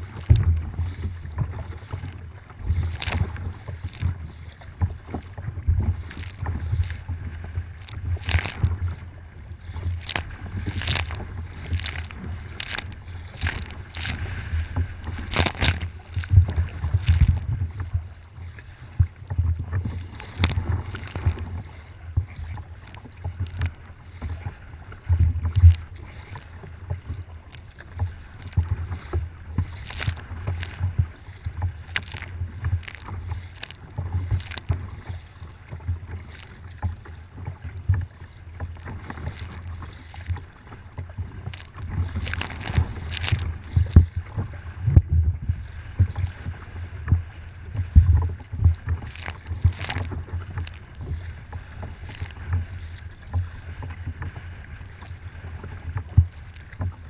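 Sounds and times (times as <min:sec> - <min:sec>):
waves slapping against kayak hull: 0:00.0 - 0:57.0.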